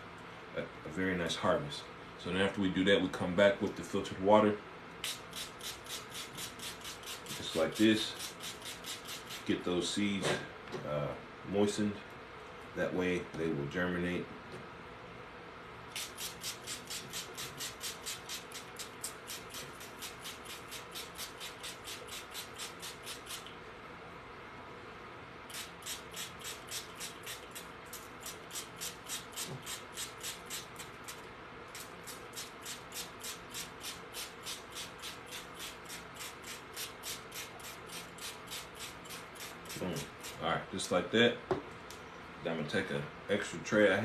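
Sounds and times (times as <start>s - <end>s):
spray bottle hissing: 16.0s - 23.5s, 25.5s - 27.6s.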